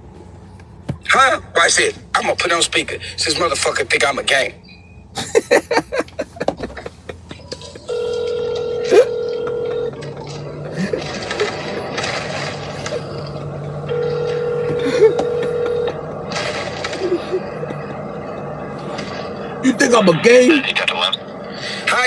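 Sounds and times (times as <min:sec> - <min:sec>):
phone ringback tone: 0:07.9 - 0:10.2, 0:13.9 - 0:16.1.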